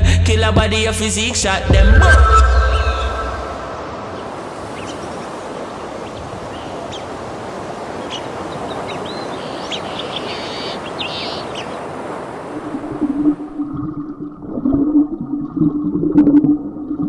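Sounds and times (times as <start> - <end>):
steady rushing wash of noise: 2.4 - 13.6
high bird chirps: 8.0 - 11.8.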